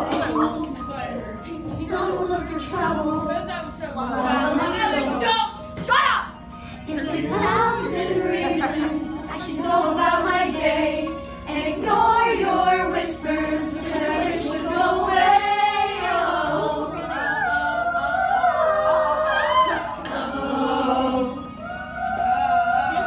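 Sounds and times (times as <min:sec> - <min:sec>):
choir singing: 0:04.0 - 0:05.2, 0:06.9 - 0:23.0.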